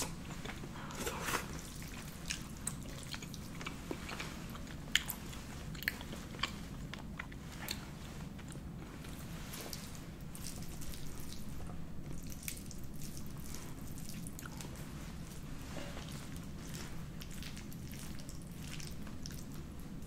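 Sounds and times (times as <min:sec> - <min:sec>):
wet sticky pasta squishes: 0:00.0 - 0:20.0.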